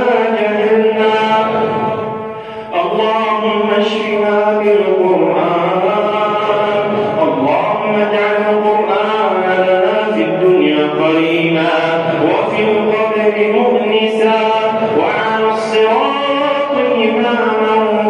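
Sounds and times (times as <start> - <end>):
person chanting: 0.0 - 18.0.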